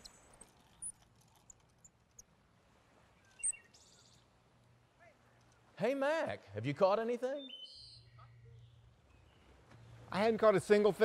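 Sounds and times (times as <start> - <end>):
bird chirps: 3.2 - 4.2, 7.4 - 9.5.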